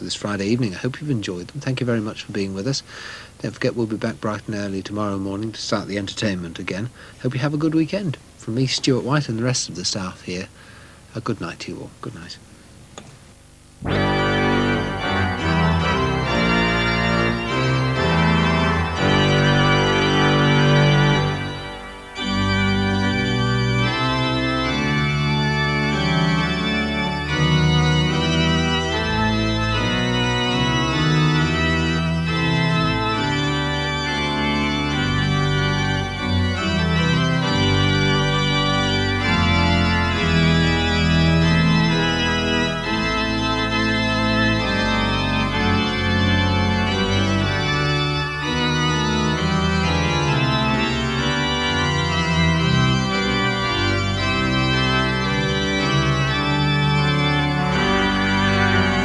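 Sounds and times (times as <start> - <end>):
organ playing sustained chords: 0.0 - 12.3, 13.8 - 59.0.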